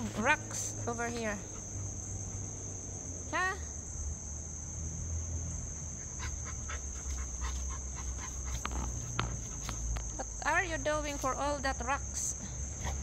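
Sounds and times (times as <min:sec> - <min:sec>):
crickets chirring: 0:00.0 - 0:13.0
dog scraping at dirt and stones: 0:06.2 - 0:10.2.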